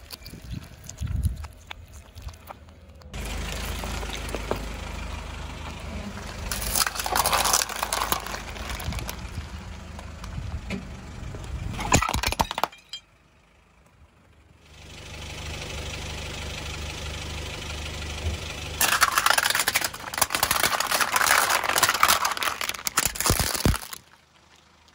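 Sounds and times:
low engine hum: 0.0 - 11.9, 12.8 - 24.9
tyre crushing hard plastic: 6.5 - 9.3, 18.8 - 24.2
ceramic plate breaking: 11.8 - 13.1, 18.8 - 24.1.

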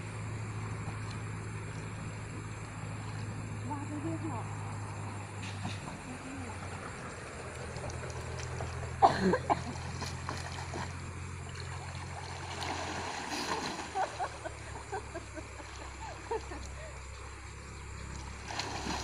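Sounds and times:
low hum: 0.0 - 19.0
water splashing: 7.5 - 19.0.

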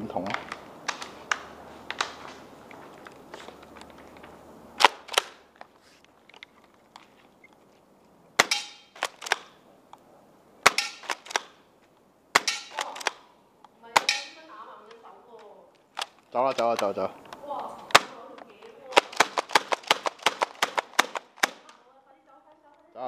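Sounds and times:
airsoft gun shots: 8.4 - 9.5, 10.6 - 11.5, 12.3 - 13.2, 14.0 - 14.4, 18.9 - 21.7.

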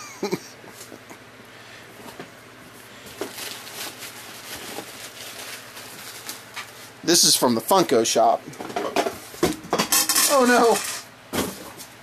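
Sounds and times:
bubble wrap rustling and crinkling: 3.0 - 7.8.

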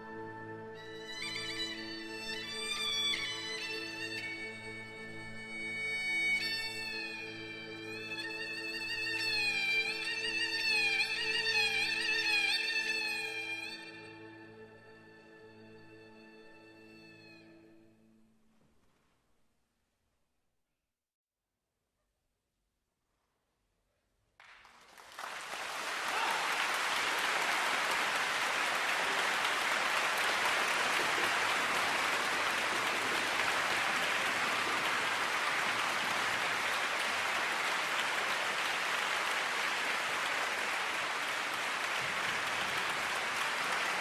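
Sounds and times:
audience applause: 24.4 - 44.0.

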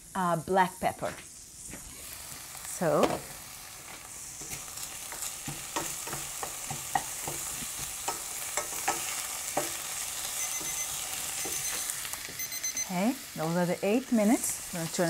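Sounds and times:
food sizzling in oil: 0.0 - 15.0
spatula knocking and scraping pan: 4.4 - 12.5.

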